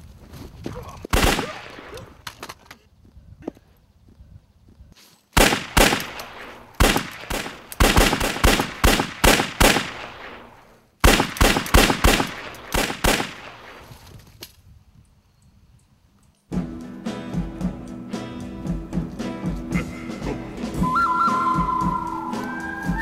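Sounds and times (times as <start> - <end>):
rapid pistol shots with echo: 1.1 - 2.0, 5.4 - 13.8.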